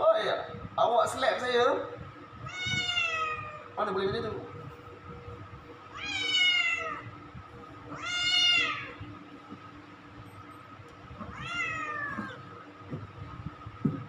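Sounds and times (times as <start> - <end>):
cat meowing: 2.4 - 3.7, 5.9 - 7.1, 7.9 - 9.0, 11.2 - 12.4.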